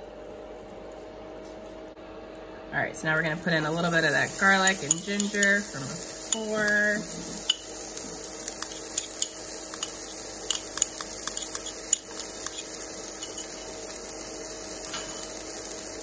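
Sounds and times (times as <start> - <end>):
faint steady hum: 0.0 - 16.0
sizzling in a frying pan: 3.1 - 16.0
oil popping and crackling: 3.7 - 16.0.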